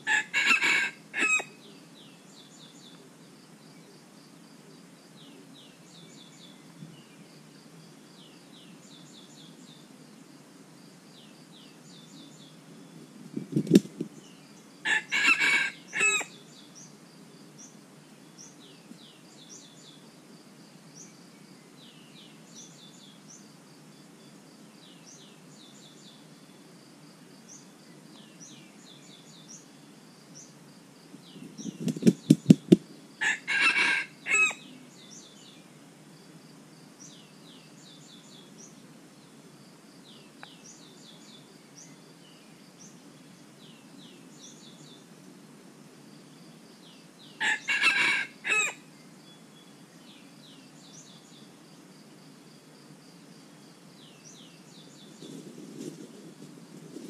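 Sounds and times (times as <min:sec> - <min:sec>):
rooster crowing: 0:00.0 - 0:01.6, 0:14.8 - 0:16.4, 0:33.2 - 0:34.6, 0:47.4 - 0:48.8
small birds chirping: 0:00.0 - 0:57.0
rooster wings flapping: 0:31.7 - 0:32.8.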